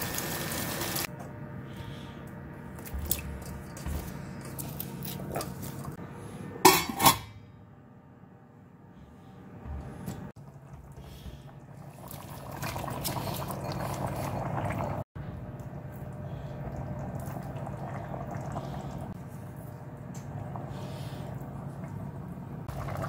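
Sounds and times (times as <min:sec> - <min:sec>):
pot lid clanking: 0:06.7 - 0:07.4.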